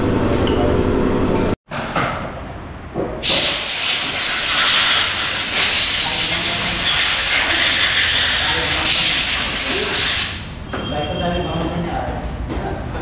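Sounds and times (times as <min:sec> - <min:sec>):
high-pressure jet hissing: 0:03.2 - 0:10.6.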